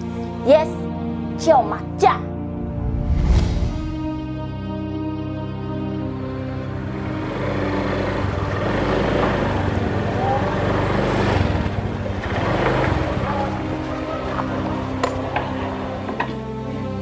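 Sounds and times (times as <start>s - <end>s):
motor scooter engine running: 6.7s - 16.5s.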